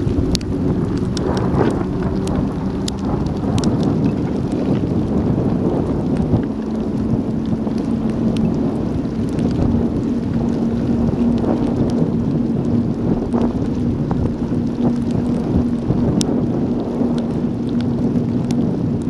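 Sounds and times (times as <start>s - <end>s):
raindrops ticking on camera: 0.0s - 19.0s
wind buffeting microphone: 0.0s - 19.0s.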